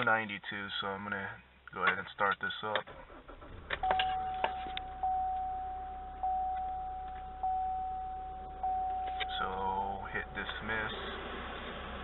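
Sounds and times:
low steady hum: 0.0s - 12.0s
dashboard warning chime: 3.8s - 11.0s.

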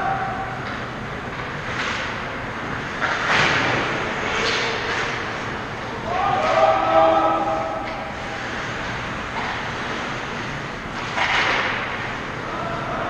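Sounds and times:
ice rink background noise: 0.0s - 13.0s
skate blades scraping ice: 8.2s - 12.2s.

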